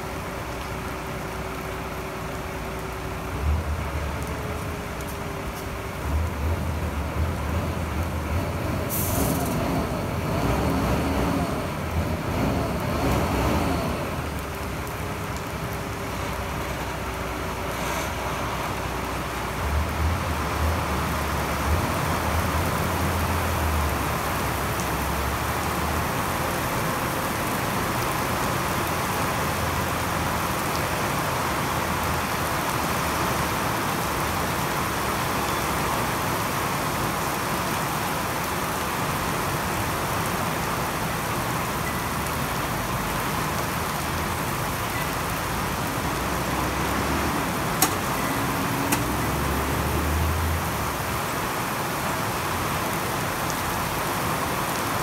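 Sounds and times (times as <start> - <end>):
truck diesel engine droning: 0.0 - 24.3
steady rain: 0.0 - 55.0.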